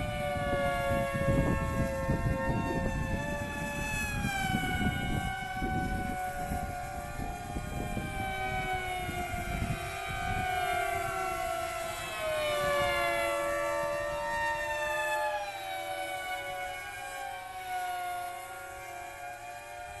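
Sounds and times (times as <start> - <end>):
wind buffeting microphone: 0.0 - 19.4
electric propeller whine: 0.0 - 20.0.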